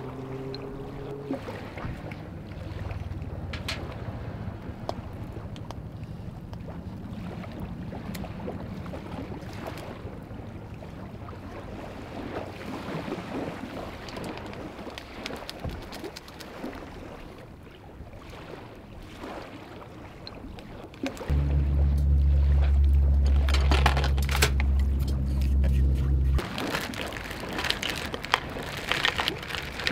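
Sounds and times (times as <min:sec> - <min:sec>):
packets rustling and clicking: 0:26.4 - 0:29.9.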